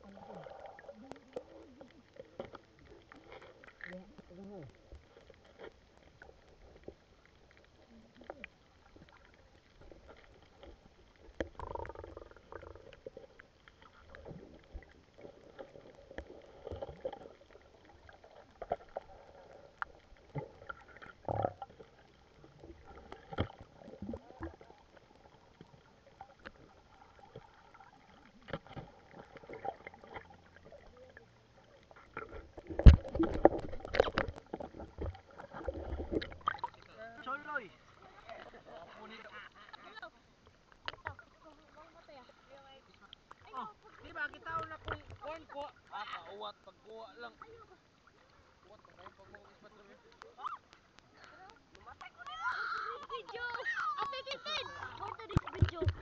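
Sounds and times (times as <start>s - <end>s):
muffled underwater water movement: 0.0s - 56.0s
underwater knocks and clicks: 9.8s - 26.7s, 27.3s - 30.9s, 31.9s - 36.9s, 40.8s - 41.2s, 44.5s - 45.3s, 50.1s - 54.3s, 55.0s - 56.0s.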